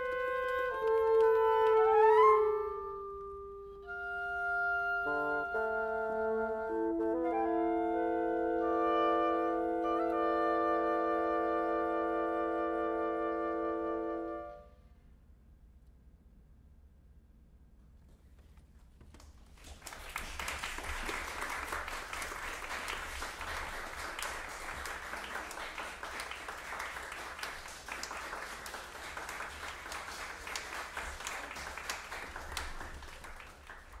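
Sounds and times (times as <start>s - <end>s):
audience applauding: 19.2s - 34.0s.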